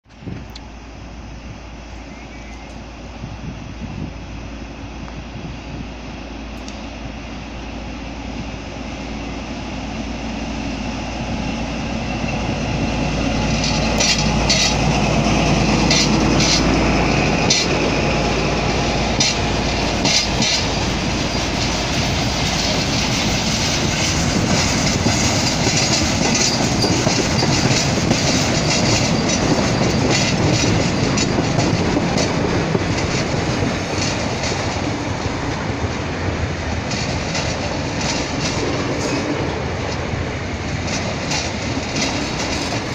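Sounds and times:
diesel locomotive passing: 0.1 - 42.9
train wagons rumbling: 0.1 - 42.9
wheels clacking over rail joints: 11.2 - 42.9.

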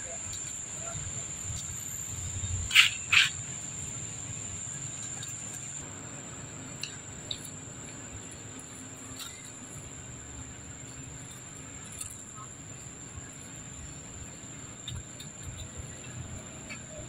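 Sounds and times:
high-pitched insect drone: 0.0 - 5.8
young monkeys squealing: 2.2 - 3.6.

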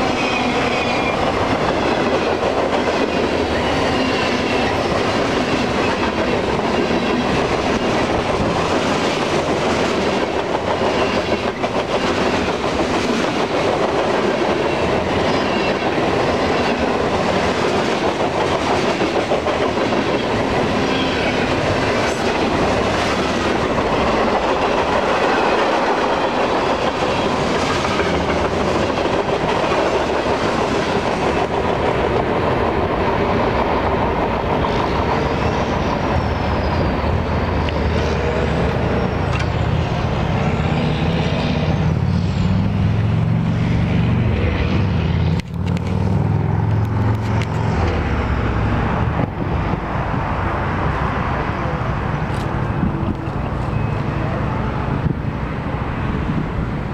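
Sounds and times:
steel wheels rumbling on rails: 0.0 - 56.9
clacking over rail joints: 0.1 - 36.1.

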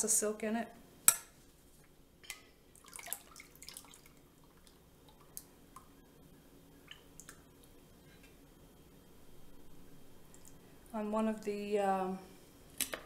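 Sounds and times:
water drips: 2.3 - 5.9, 6.8 - 7.8
liquid trickling: 2.8 - 5.4.

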